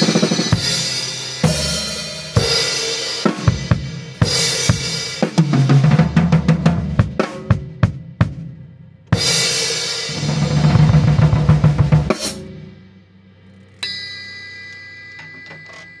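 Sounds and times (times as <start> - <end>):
rolling drum fill: 0.0 - 12.8.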